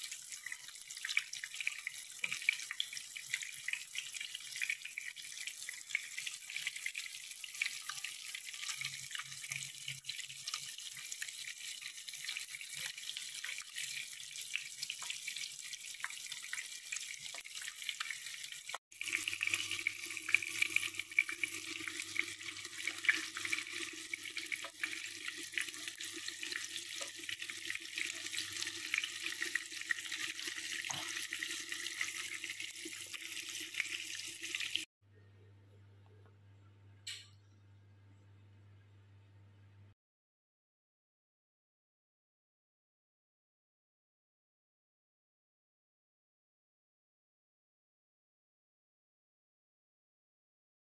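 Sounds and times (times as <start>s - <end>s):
food sizzling in hot oil: 0.0s - 34.9s.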